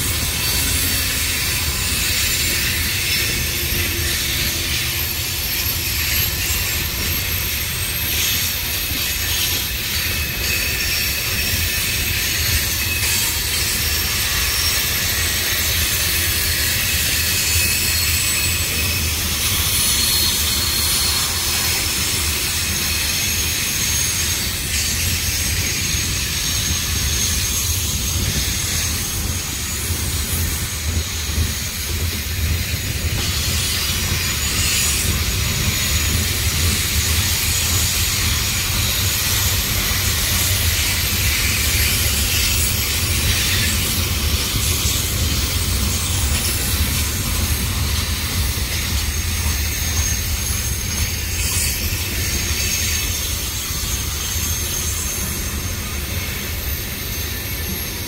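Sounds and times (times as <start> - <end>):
high-pitched wheel squeal: 0.0 - 58.0
wheels rumbling on rail: 0.0 - 58.0.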